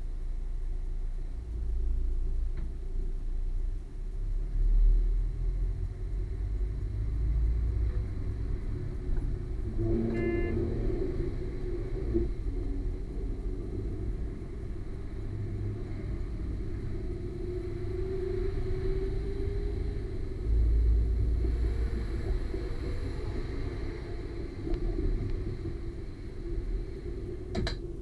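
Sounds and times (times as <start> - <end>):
diesel train engine rumble: 0.0 - 28.0
multi-note train horn: 9.6 - 12.3.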